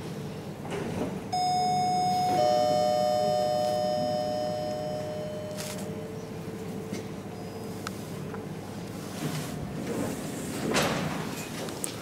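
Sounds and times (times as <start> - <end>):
elevator two-tone chime: 1.3 - 6.3
steady low hum: 1.3 - 10.6.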